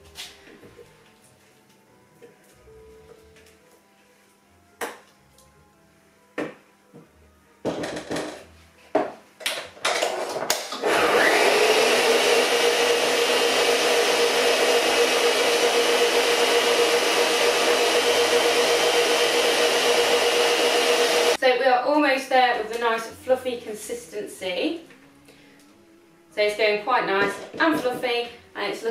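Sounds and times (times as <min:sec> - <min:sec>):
stand mixer motor humming: 0:10.8 - 0:21.4.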